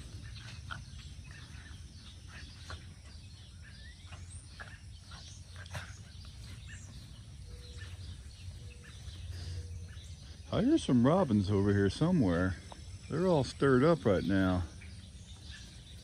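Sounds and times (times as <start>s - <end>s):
robins calling sharply: 0.0s - 16.0s.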